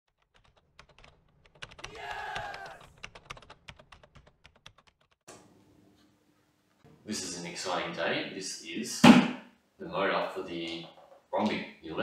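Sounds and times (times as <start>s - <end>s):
faint room hum: 5.3s - 12.0s.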